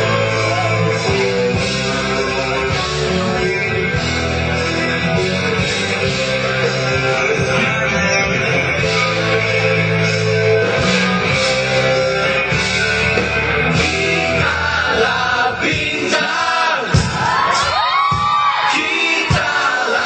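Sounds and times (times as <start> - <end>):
electric guitar: 0.0 - 15.3
live pop-rock band: 0.0 - 20.0
group of singers: 11.2 - 20.0.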